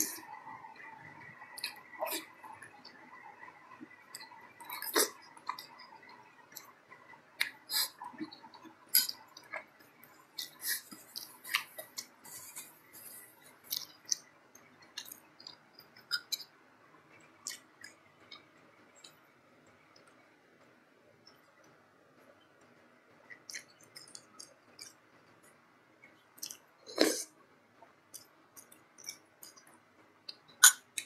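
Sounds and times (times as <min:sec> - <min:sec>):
close chewing: 0:07.4 - 0:16.5
wet mouth clicks and smacks: 0:28.1 - 0:29.7.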